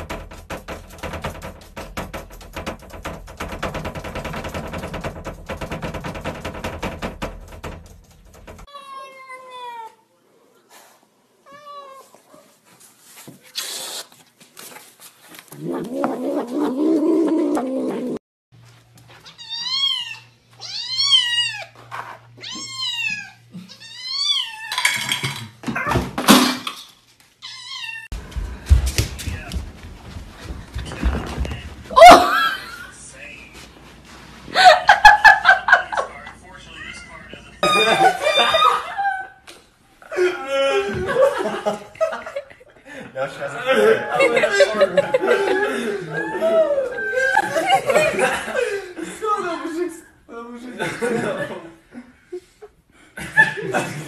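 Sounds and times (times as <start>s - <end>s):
cat growling low: 15.5s - 18.2s.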